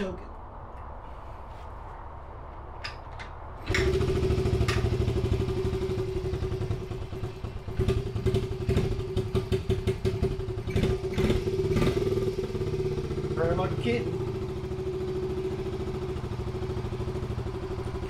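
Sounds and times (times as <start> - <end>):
small motorcycle engine kick-started: 3.6 - 15.0
small engine idling: 3.6 - 18.0.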